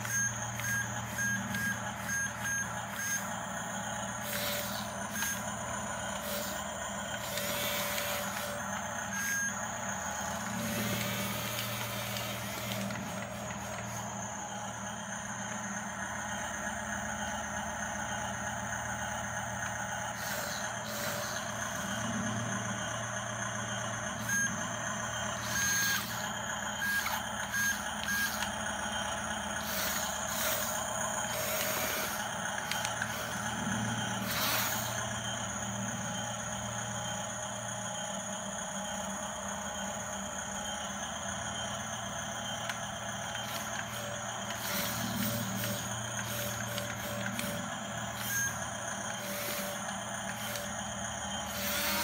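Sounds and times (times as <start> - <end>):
electric motor hum: 0.0 - 52.0
short high electronic beeps: 25.4 - 26.2.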